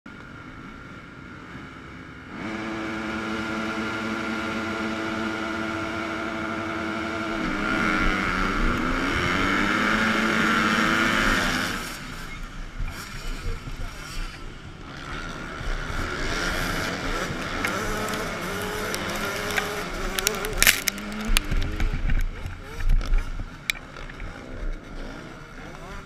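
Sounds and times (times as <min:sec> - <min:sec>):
motocross bike engines revving: 0:00.1 - 0:26.0
wind noise: 0:06.3 - 0:24.3.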